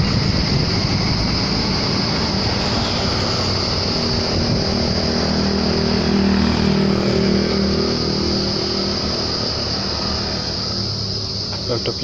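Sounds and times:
high insect trill: 0.0 - 12.0
diesel truck engine idling: 3.2 - 12.0.

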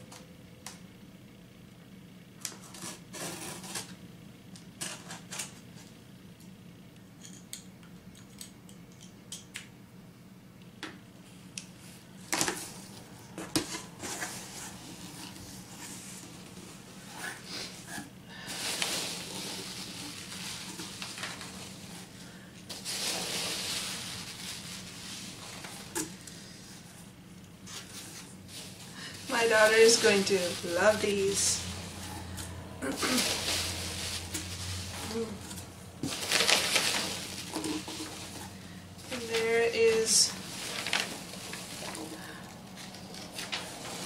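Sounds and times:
packing peanuts rustling: 12.5 - 26.9, 27.6 - 44.0.

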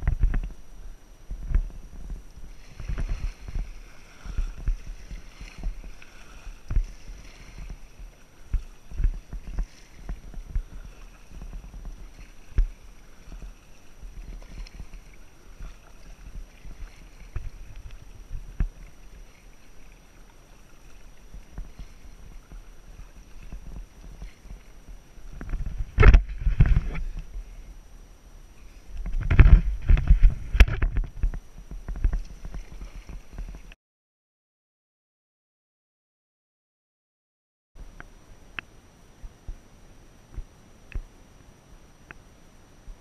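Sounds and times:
paddle strokes splashing: 0.0 - 27.8, 28.5 - 33.8.

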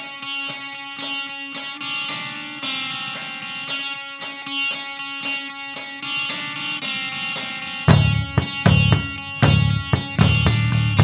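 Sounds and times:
guitar chords: 0.0 - 11.0
drum kit hits: 3.2 - 11.0.

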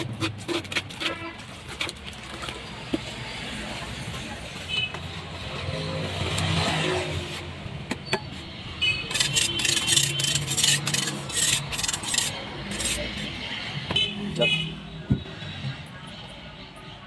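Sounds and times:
metal trowel scraping: 7.1 - 13.4.

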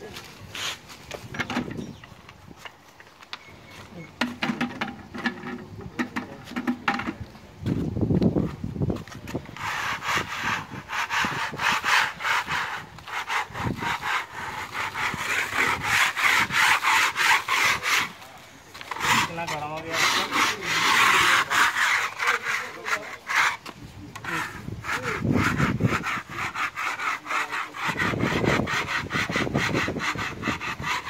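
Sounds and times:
metal scraper scraping wall: 9.4 - 31.0.

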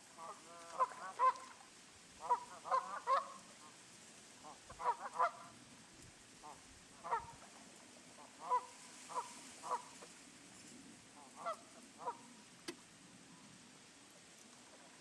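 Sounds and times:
waterfowl calling: 0.2 - 3.8, 4.4 - 5.6, 6.4 - 7.4, 8.2 - 10.1, 11.2 - 12.4.

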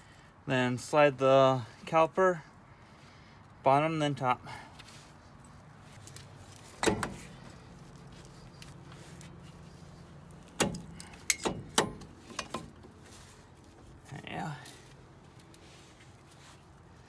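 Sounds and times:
brake caliper metal knocks: 6.8 - 7.4, 10.5 - 12.9.

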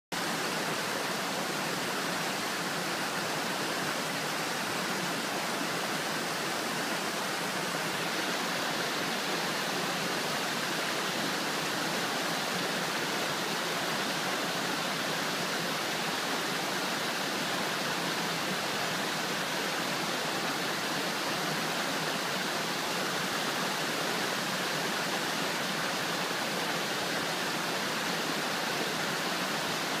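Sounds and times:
stream rushing over boulders: 0.1 - 30.0.

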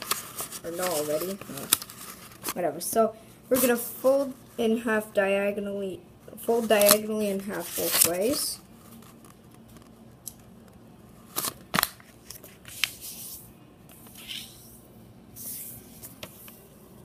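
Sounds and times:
fingers rubbing paper fold: 0.0 - 2.6
paper crackling: 0.0 - 2.6, 6.5 - 10.0.

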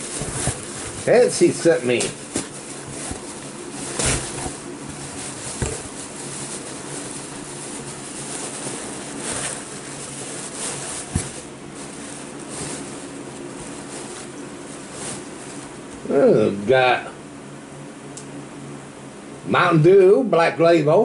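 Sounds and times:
rummaging in cardboard box: 0.0 - 15.8
steady low hum: 0.0 - 21.0.

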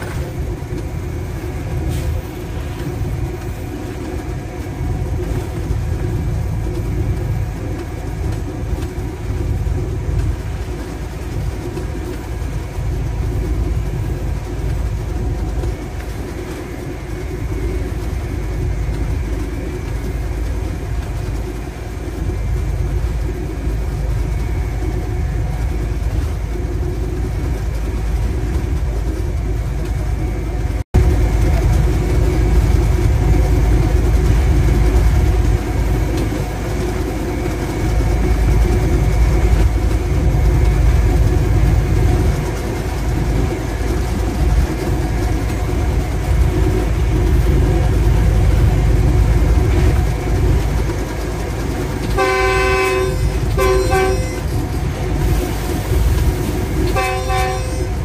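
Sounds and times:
locomotive engine drone: 0.0 - 58.0
rail rumble: 0.0 - 58.0
locomotive horn blasts: 52.2 - 54.5, 56.9 - 58.0.

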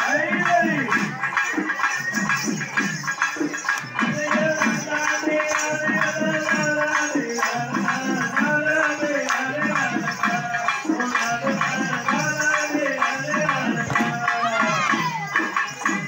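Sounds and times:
jingling percussion: 0.0 - 16.0
quick drum strokes: 13.4 - 15.8.

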